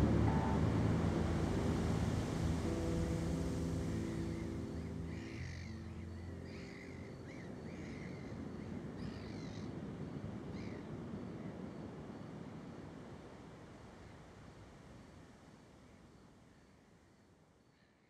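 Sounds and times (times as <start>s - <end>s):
steady rushing noise: 0.0s - 6.5s
low held chord: 0.0s - 7.8s.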